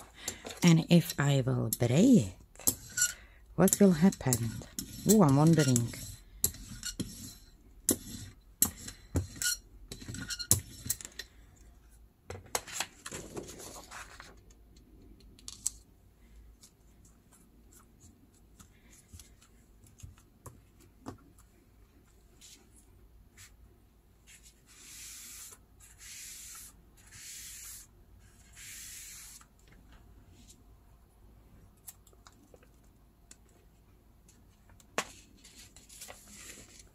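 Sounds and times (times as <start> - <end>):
paper rubbing on silicone mat: 24.2 - 29.5.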